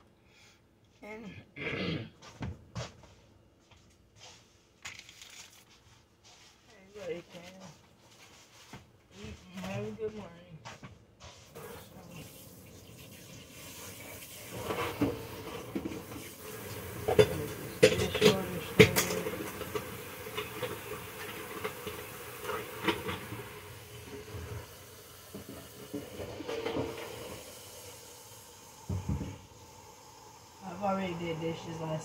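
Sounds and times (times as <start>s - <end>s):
pots and dishes clattering: 12.8s - 27.5s
low steady hiss: 23.8s - 32.0s.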